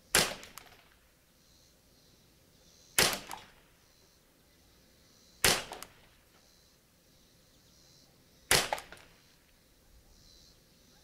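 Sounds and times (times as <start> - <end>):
rifle shot with echo: 0.1 - 0.8, 3.0 - 3.6, 5.4 - 6.0, 8.5 - 9.1.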